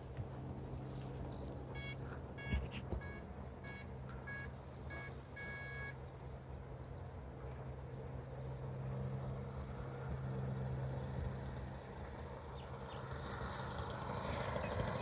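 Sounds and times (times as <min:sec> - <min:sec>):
short electronic beeps: 0:01.7 - 0:05.9.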